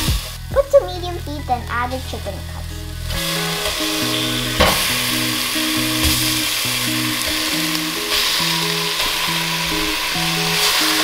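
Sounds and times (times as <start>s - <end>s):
background music with held notes: 0.0s - 11.0s
chicken sizzling in hot oil: 2.8s - 11.0s.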